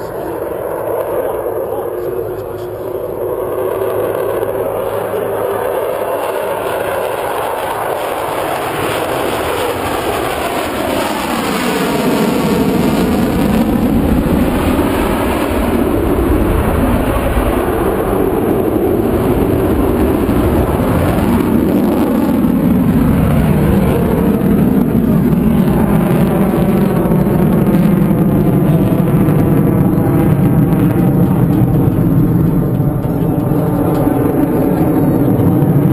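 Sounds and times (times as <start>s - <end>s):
fighter jet engine roaring past: 0.0s - 35.9s.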